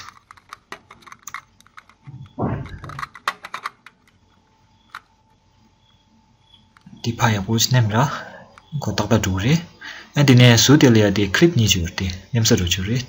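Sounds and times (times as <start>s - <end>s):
cable connector clicking and rattling: 0.0s - 5.1s.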